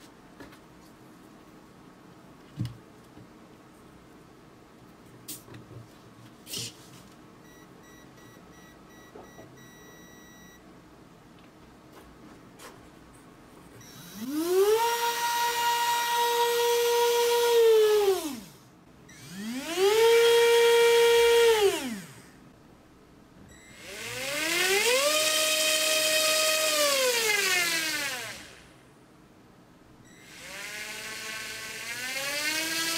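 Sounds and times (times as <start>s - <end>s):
faint arming beeps: 7.4s - 10.6s, 30.0s - 30.3s
electric motor whine: 13.8s - 22.3s, 23.7s - 28.7s, 30.2s - 32.9s.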